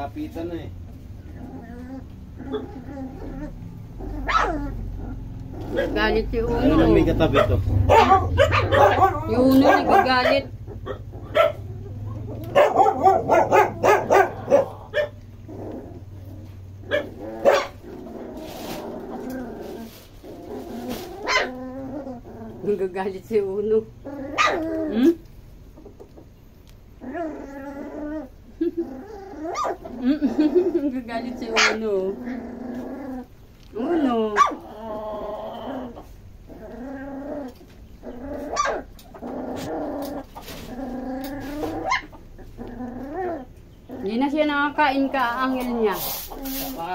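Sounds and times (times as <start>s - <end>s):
puppy yapping: 1.2s - 15.9s, 16.8s - 17.9s, 20.9s - 22.2s, 24.0s - 25.2s, 29.0s - 30.5s, 31.4s - 33.2s, 34.0s - 36.0s, 37.2s - 44.3s.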